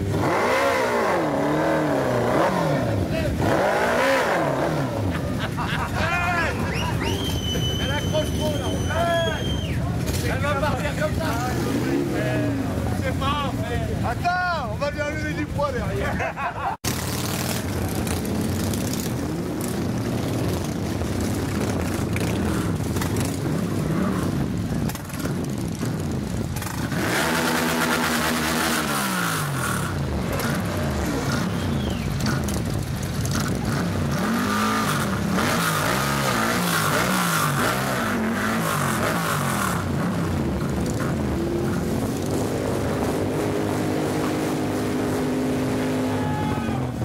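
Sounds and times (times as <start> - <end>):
motorcycle engines revving: 0.0 - 47.0.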